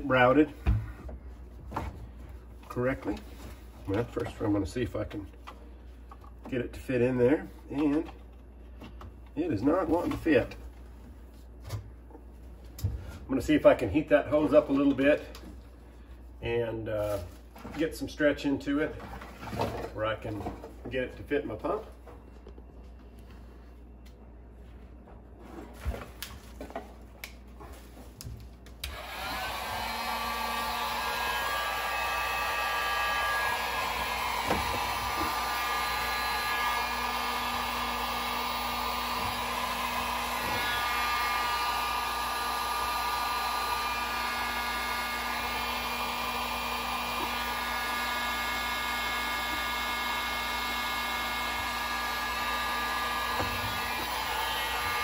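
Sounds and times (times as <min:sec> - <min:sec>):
heat gun fan blowing: 0:28.7 - 0:55.0.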